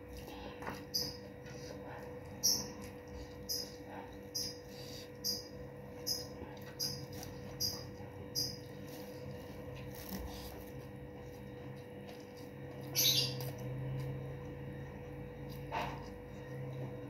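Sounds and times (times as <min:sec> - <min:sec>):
steady low hum: 0:00.0 - 0:17.0
person chewing: 0:06.0 - 0:16.9.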